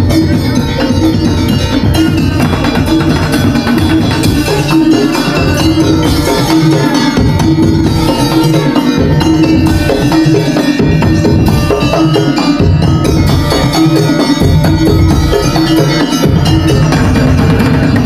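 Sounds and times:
slit drums and drums beating: 0.0 - 18.0.

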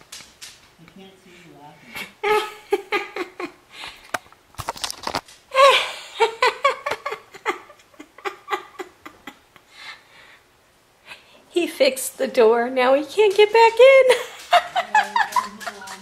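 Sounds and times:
person laughing: 2.0 - 3.6, 5.5 - 9.6, 14.1 - 16.0.

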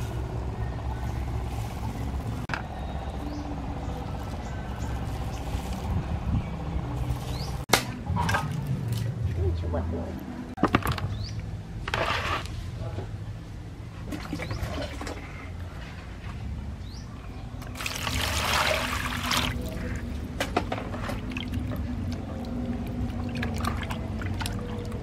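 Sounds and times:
water splashing and sloshing: 13.8 - 16.4, 17.6 - 25.0
water pouring into plastic basin: 17.7 - 19.8.

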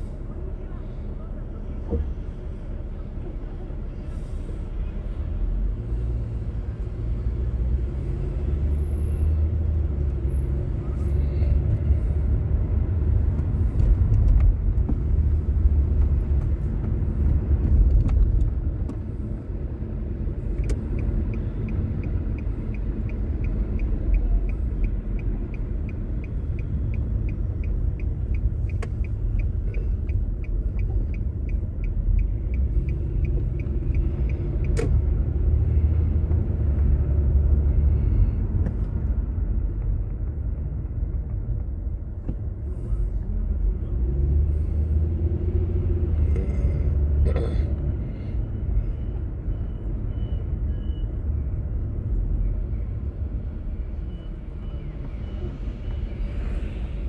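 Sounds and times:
car engine and road rumble: 0.0 - 57.0
light regular ticking: 20.6 - 34.9.

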